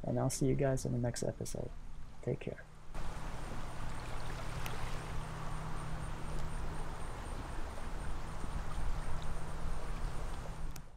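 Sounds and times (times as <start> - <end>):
faint ticks: 6.3 - 6.6, 10.3 - 10.9.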